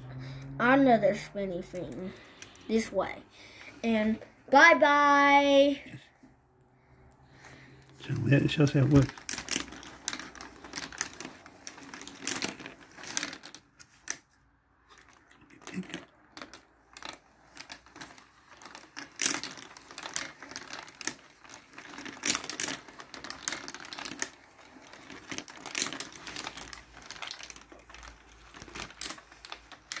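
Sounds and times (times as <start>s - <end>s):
marbles rolling and clattering: 0.0s - 3.1s, 7.4s - 30.0s.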